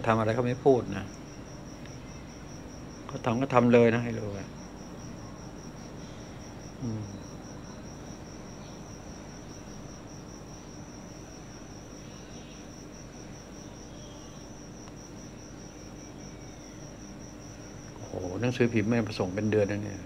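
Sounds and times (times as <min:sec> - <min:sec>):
crickets chirping: 0:00.0 - 0:20.0
low voice sound: 0:06.8 - 0:07.2.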